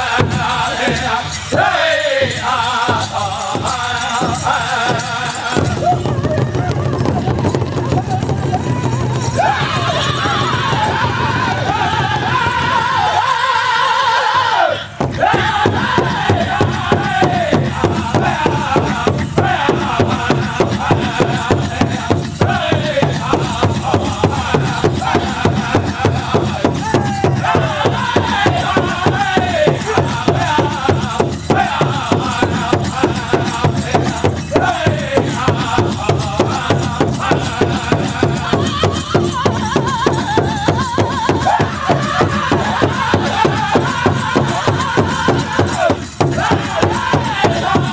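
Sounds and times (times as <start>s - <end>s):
large drum steady beat: 0.0s - 13.1s, 15.0s - 47.9s
men singing high-pitched: 0.0s - 47.9s.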